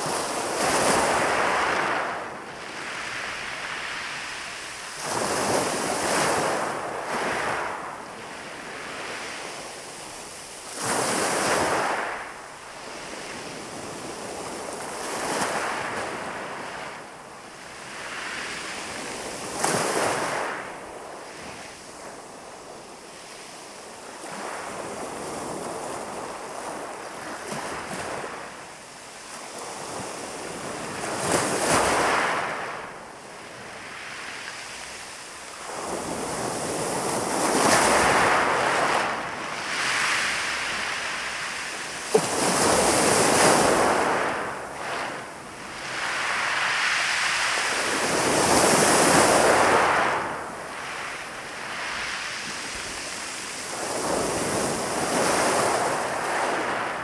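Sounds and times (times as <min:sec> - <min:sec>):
waves washing over pebbles: 0:35.0 - 0:57.0.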